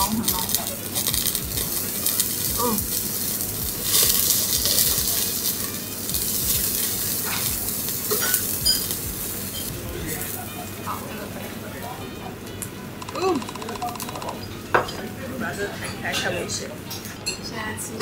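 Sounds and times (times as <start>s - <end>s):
meat sizzling on a grill: 0.0s - 13.0s.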